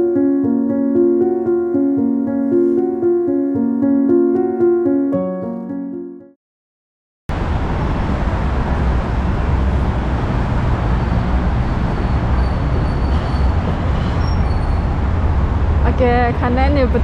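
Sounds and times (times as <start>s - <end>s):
road traffic rumble: 7.3s - 17.0s.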